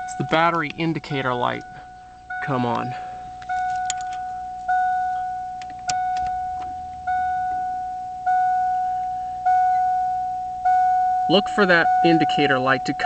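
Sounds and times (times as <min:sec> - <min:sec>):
dashboard warning chime: 0:00.0 - 0:13.0.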